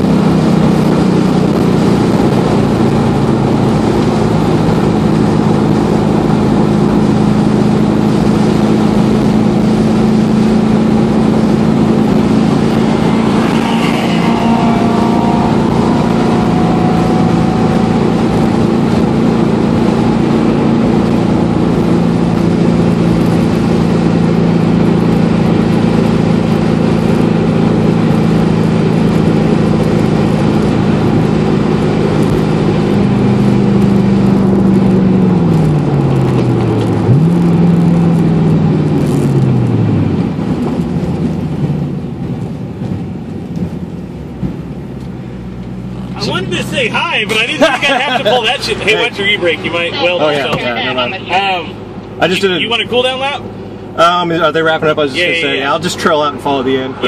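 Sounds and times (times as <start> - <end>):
car engine running loud: 0.0 - 57.0.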